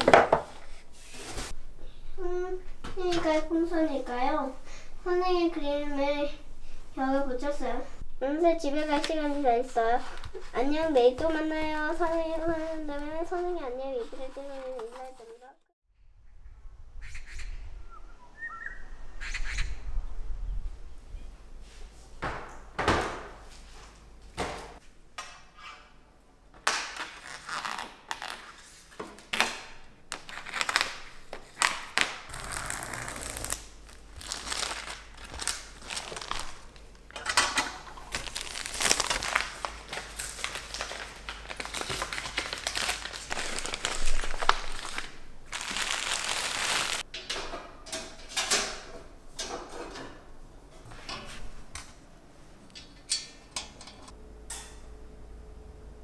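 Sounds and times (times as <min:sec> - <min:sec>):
packaging crinkling and rustling: 0:30.1 - 0:37.0, 0:38.0 - 0:47.0
clicks and light knocks of parts: 0:47.1 - 0:50.2, 0:52.7 - 0:54.8.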